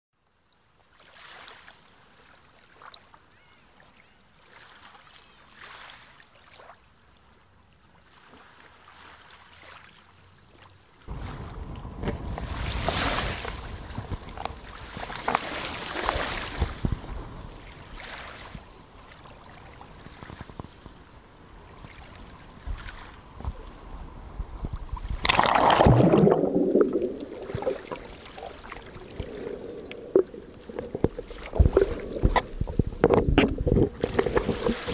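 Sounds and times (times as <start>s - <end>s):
sea water sloshing and splashing: 0.9s - 3.1s, 4.4s - 6.8s, 8.0s - 20.7s, 21.7s - 23.8s, 24.9s - 34.9s
splash going underwater: 11.1s - 16.9s, 25.0s - 34.9s.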